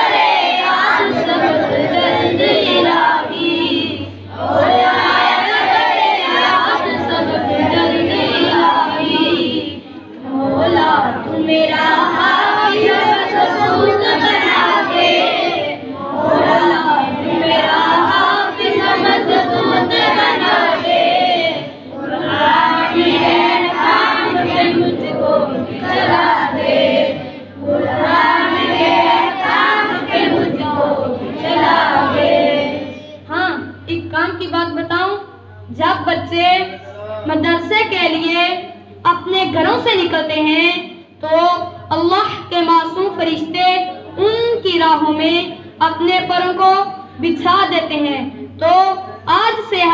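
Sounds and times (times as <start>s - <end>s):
children chanting in unison: 0.0s - 33.2s.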